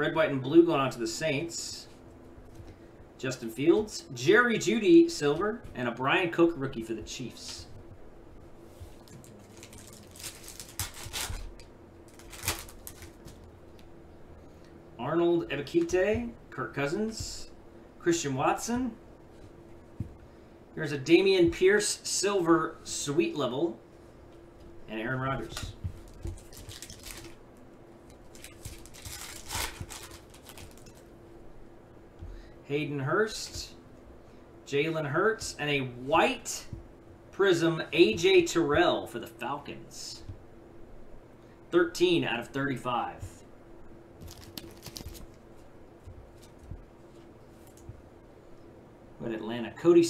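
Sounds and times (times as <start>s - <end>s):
foil wrapper tearing and crinkling: 9.0s - 13.4s, 26.1s - 27.4s, 28.2s - 31.1s, 44.2s - 45.4s.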